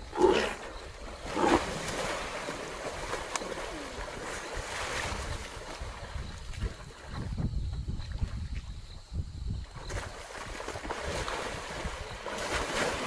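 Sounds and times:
water splashing: 0.0 - 7.5, 9.8 - 13.0
wind rumble on microphone: 2.8 - 13.0.

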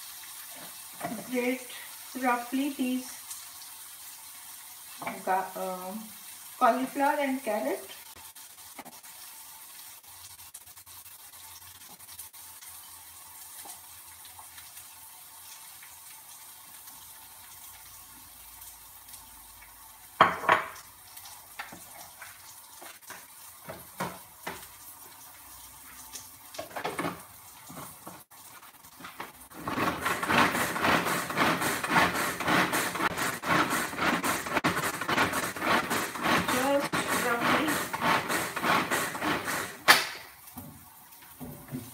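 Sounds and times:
onions frying in a pan: 0.0 - 41.9
food chopper rattling: 29.5 - 40.3.

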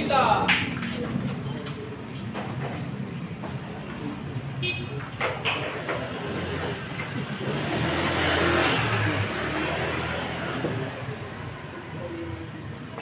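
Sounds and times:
faint background chatter: 0.0 - 13.0
vehicle passing: 6.0 - 12.0.

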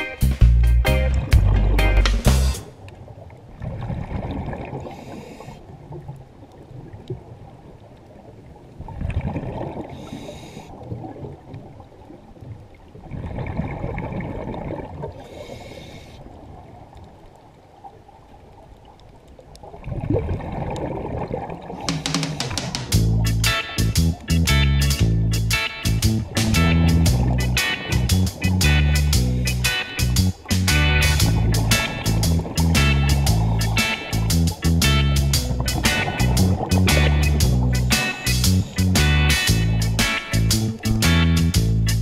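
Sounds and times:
diver breathing through regulator: 4.8 - 5.6, 9.8 - 10.8, 15.2 - 16.3, 33.2 - 34.4.

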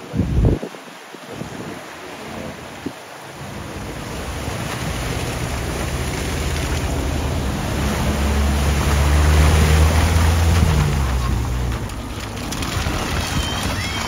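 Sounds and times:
water rushing from wheels: 0.0 - 14.0
vehicle engine hum: 3.4 - 14.0.

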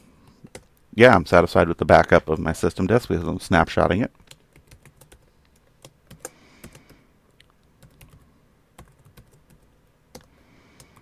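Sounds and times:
computer keyboard typing: 4.2 - 7.0, 7.8 - 11.0.

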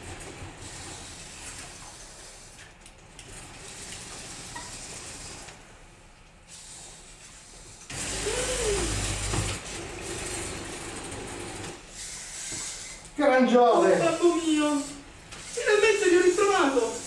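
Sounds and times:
small electric motors whirring: 6.6 - 17.0.

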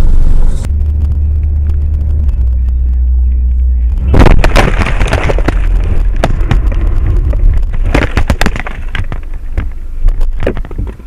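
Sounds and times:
car crash rumble: 0.0 - 11.0
bangs knocks and clattering: 4.1 - 11.0.

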